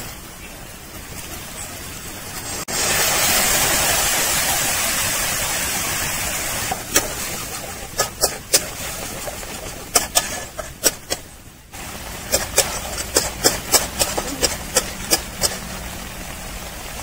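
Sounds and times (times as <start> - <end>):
spatula scraping a pan: 6.9 - 11.3, 12.3 - 15.7.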